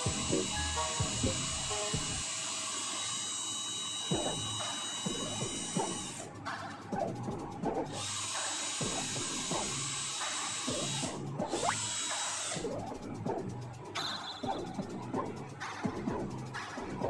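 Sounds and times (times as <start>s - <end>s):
cordless drill whirring: 0.0s - 6.2s, 8.0s - 12.6s.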